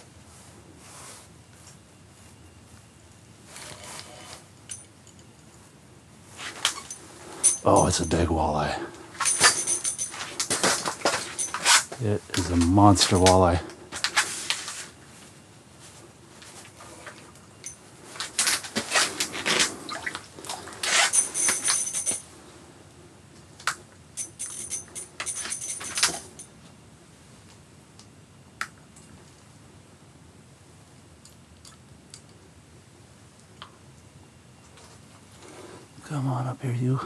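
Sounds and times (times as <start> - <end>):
faint high ringing: 6.8 - 13.7, 17.3 - 18.0, 20.9 - 22.4, 24.2 - 26.7.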